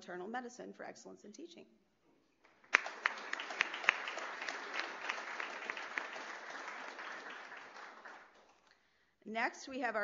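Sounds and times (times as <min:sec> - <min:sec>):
audience applauding: 0:02.5 - 0:08.7.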